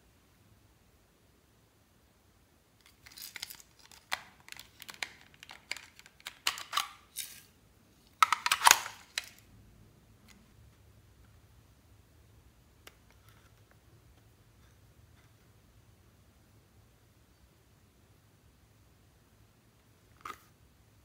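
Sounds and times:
plastic toy container clicking and rattling: 2.8s - 7.5s, 8.2s - 9.4s.

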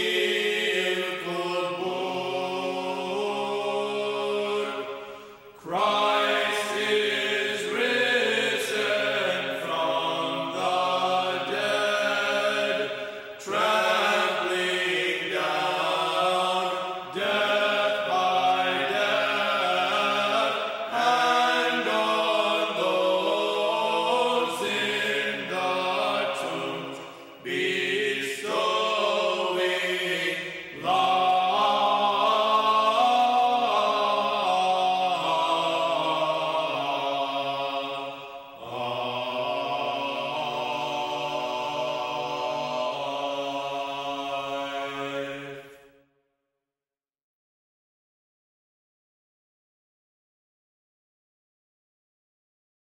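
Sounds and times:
choir chanting: 0.0s - 46.0s.

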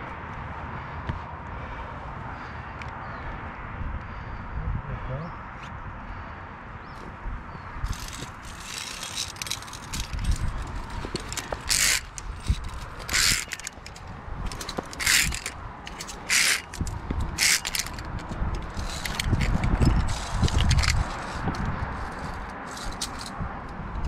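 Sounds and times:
hand scraping steel cable: 7.8s - 24.0s.

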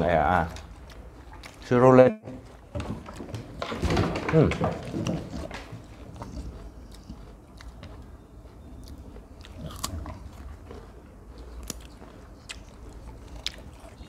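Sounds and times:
crunching of raw vegetable: 5.3s - 14.0s.

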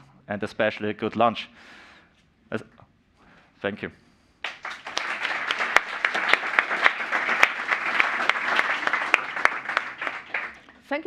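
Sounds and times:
audience applauding: 4.4s - 10.8s.

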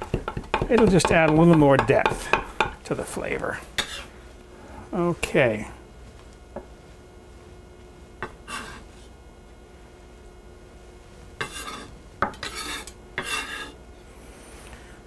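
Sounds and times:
knife scraping cutting board: 3.8s - 4.1s, 8.2s - 8.9s, 11.4s - 13.8s.

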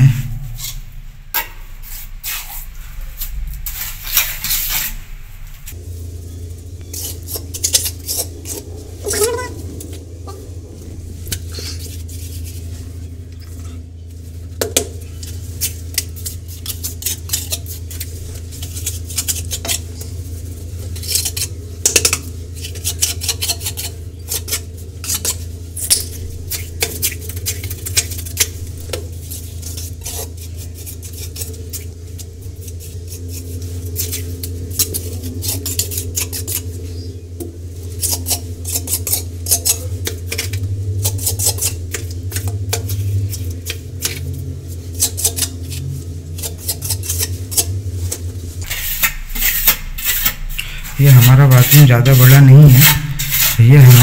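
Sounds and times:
steady low hum: 0.0s - 54.0s
trowel scraping on bricks: 37.9s - 54.0s.

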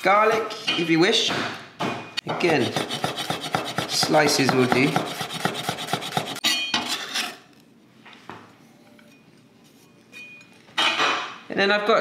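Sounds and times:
knife chopping garlic on board: 2.4s - 6.4s.

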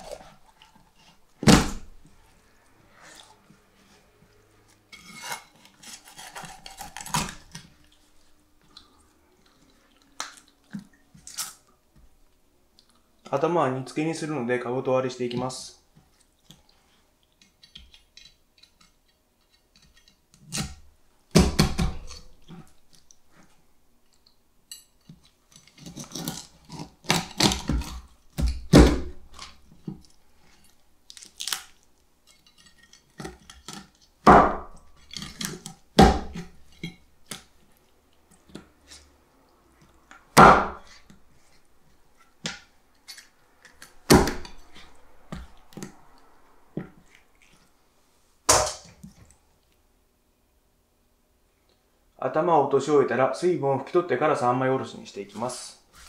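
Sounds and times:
knife chopping through fish bone: 5.1s - 7.6s, 19.8s - 22.7s, 25.8s - 30.0s, 33.2s - 37.4s, 40.4s - 41.0s, 43.7s - 46.0s.

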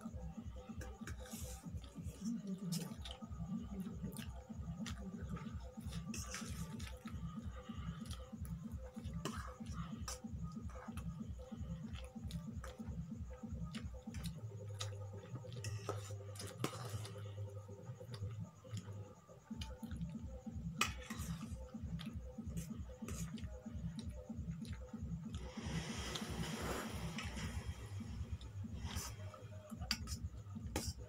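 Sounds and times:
background music with low beat: 0.0s - 31.0s
cutlery clicking on steel bowls: 29.8s - 30.2s.

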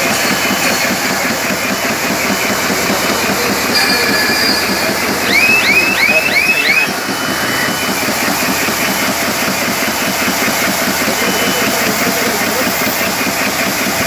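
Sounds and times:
bag-making machine running: 0.0s - 14.0s
quick rising whines: 2.6s - 9.1s.

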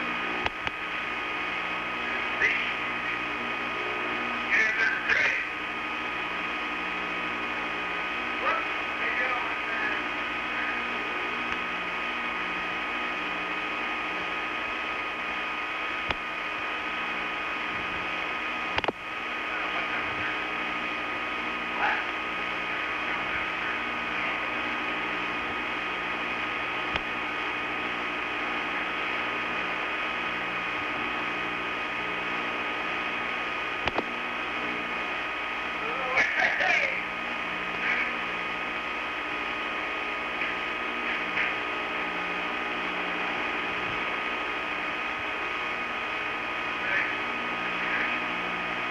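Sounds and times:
faint steady tones: 0.0s - 48.9s
steady hiss and hum: 0.0s - 48.9s
sharp clicks: 18.8s - 19.0s, 33.8s - 34.1s.

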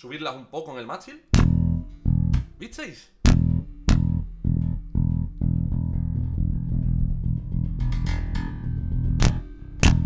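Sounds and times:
strings buzzing against frets: 1.3s - 2.6s, 3.2s - 10.0s
electric bass plucked: 1.3s - 10.0s.

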